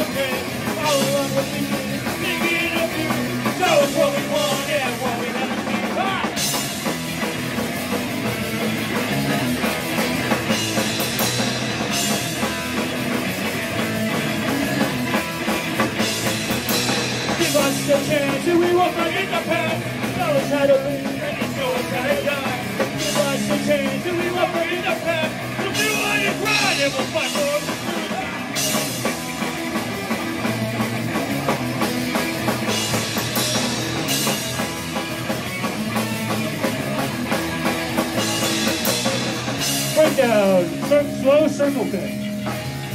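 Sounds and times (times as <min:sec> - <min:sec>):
punk rock band playing: 0:00.0 - 0:42.9.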